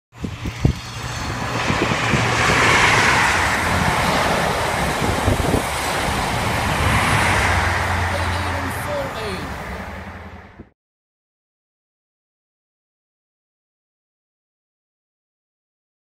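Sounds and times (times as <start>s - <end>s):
train wheels rushing on rails: 0.2s - 10.6s
low diesel engine hum: 0.2s - 10.7s.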